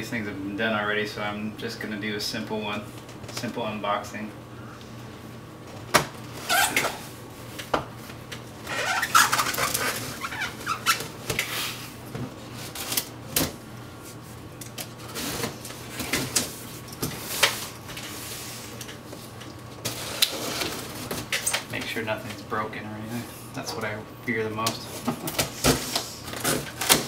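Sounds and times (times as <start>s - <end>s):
blade cutting packing tape: 8.7s - 11.5s.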